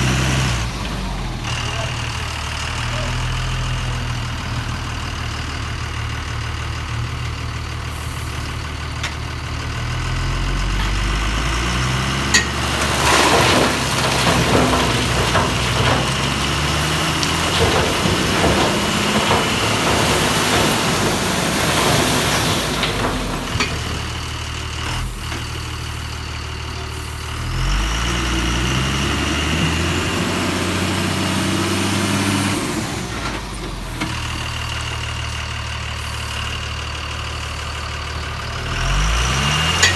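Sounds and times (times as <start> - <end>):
truck diesel engine revving: 0.0 - 36.2, 37.6 - 39.9
tyres churning mud: 11.6 - 25.0.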